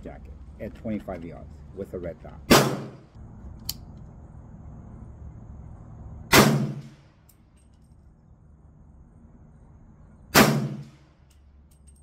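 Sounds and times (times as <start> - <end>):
rifle shots with echo: 2.5 - 3.0, 6.3 - 7.0, 10.4 - 11.0.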